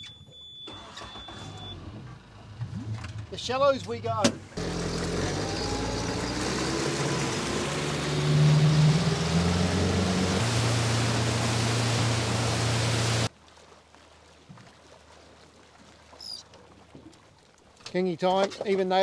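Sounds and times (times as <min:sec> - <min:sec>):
wind: 0:00.0 - 0:19.0
outboard motor running: 0:02.4 - 0:13.3
water rushing: 0:02.7 - 0:18.2.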